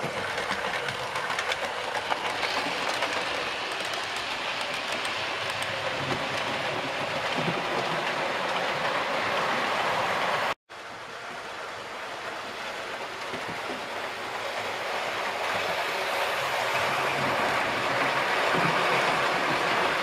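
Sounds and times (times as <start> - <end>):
model train wheels rumbling on rails: 0.0 - 10.0.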